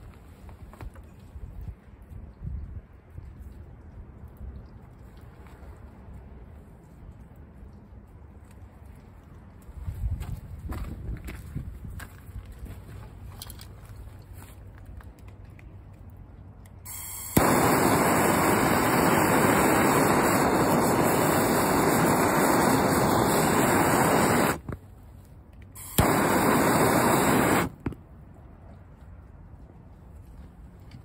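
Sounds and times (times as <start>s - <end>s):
blowtorch flame hissing: 16.9s - 24.8s, 25.8s - 27.8s
blowtorch ignition click: 16.9s - 24.8s, 25.8s - 27.8s.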